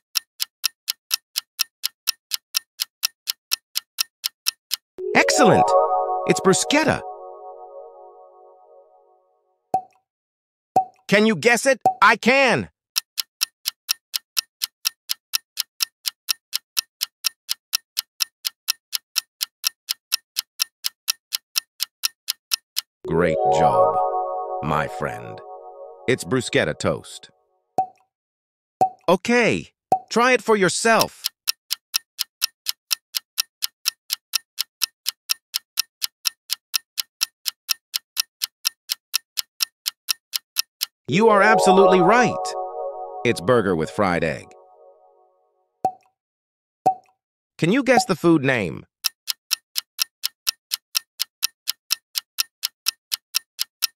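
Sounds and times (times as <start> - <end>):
clock ticking: 0.0 - 8.3, 13.0 - 26.6, 30.9 - 44.6, 49.0 - 53.9.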